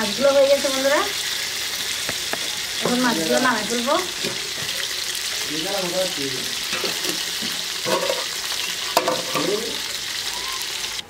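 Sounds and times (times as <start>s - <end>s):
fish sizzling in oil: 0.0s - 11.0s.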